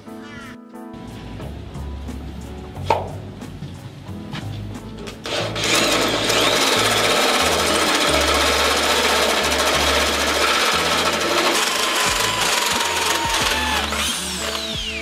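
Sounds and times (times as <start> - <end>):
power tool cutting steel: 5.3 - 15.0.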